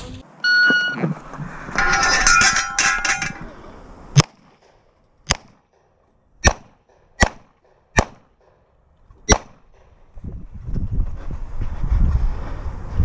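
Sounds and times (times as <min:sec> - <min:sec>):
pistol shots: 0:04.2 - 0:08.6, 0:09.3 - 0:09.9.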